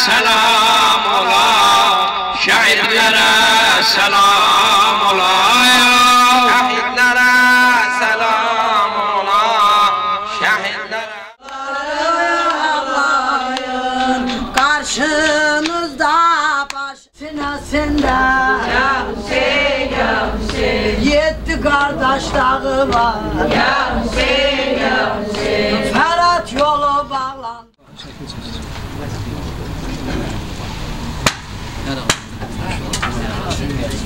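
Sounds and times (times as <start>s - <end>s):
man singing mournfully: 0.0s - 11.3s.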